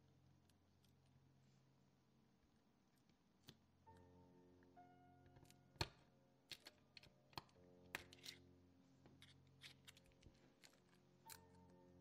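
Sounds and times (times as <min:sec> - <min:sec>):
soft background music: 0:03.3 - 0:12.0.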